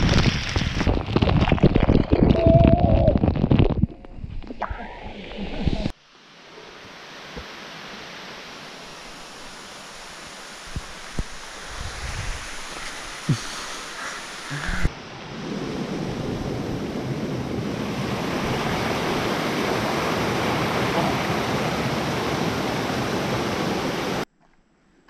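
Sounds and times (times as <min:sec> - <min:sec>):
water pouring over rocks: 0:00.0 - 0:04.1
waterfall rushing: 0:06.2 - 0:15.0, 0:16.0 - 0:24.3.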